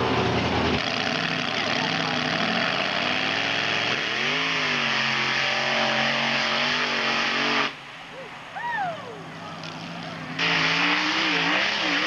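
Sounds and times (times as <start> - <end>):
engine revving at full throttle: 0.8 - 7.8, 10.4 - 12.0.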